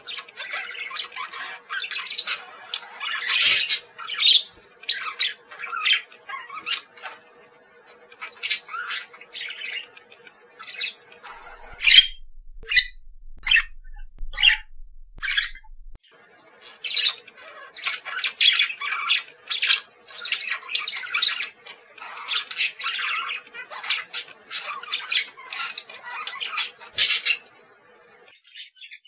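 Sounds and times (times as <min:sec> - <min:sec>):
budgerigar chirping and squawking: 0:00.0 - 0:07.2, 0:10.7 - 0:15.9
faint steady hum: 0:04.0 - 0:16.5.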